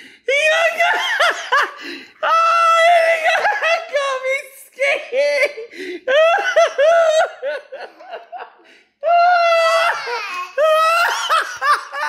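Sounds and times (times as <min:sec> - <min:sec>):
faint gasps: 0:01.8 - 0:02.2, 0:05.7 - 0:06.1
man laughing hard: 0:05.0 - 0:08.7, 0:09.7 - 0:12.0.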